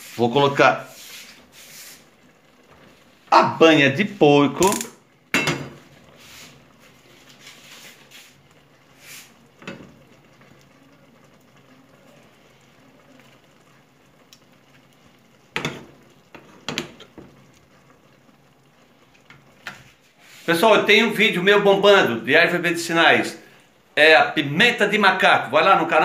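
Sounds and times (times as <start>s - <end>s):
lard spooned into frying pan: 4.5s - 20.5s.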